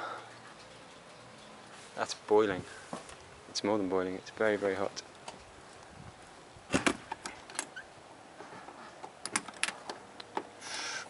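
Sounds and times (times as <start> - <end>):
metallic latch clicks: 9.2 - 10.5.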